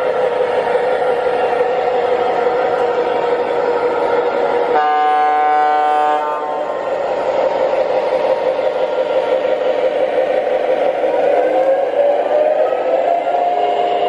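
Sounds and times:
model train diesel sound: 0.0 - 14.0
electronic train horn: 4.7 - 6.7.

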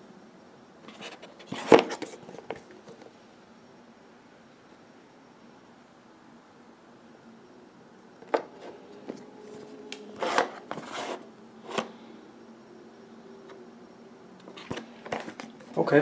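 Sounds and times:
cardboard box scraping slide: 10.2 - 11.9.

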